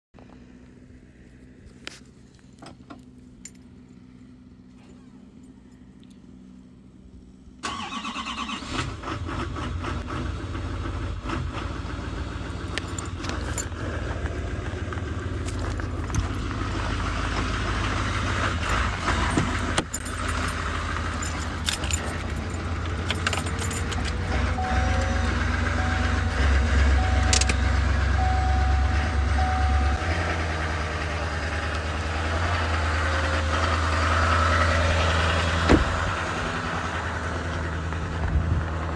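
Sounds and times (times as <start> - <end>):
diesel engine rumbling: 0.2 - 38.9
in-cab chime beeping: 22.5 - 30.4.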